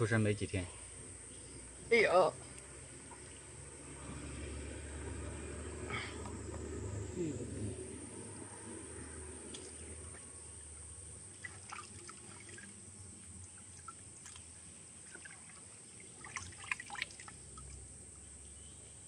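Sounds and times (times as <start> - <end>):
water dripping: 2.5 - 3.7, 9.4 - 17.9
water splashing: 9.4 - 17.9.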